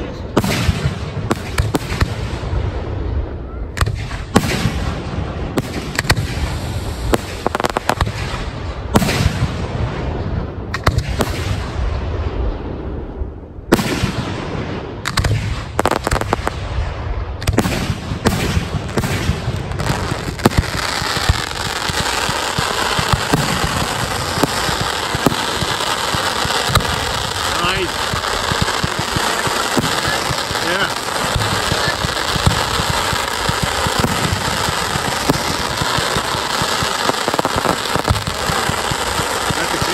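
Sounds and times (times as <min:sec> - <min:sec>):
fireworks bursting overhead: 0:00.0 - 0:39.9
fireworks crackling barrage: 0:00.0 - 0:39.9.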